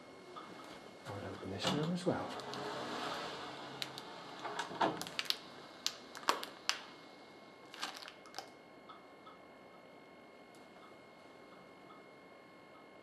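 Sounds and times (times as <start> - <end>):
faint room hiss: 0.0 - 7.9.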